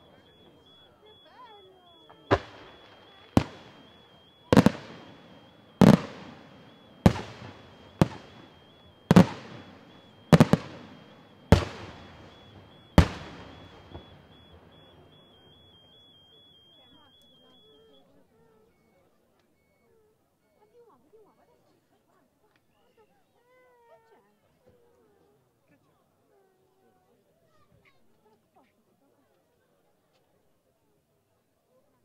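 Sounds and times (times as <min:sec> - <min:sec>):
firework shells bursting with echo: 0:02.0 - 0:16.0.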